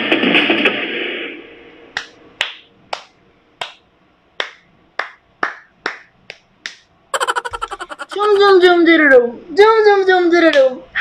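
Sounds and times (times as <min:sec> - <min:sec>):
slow hand claps: 0:02.0 - 0:03.8, 0:04.4 - 0:07.8.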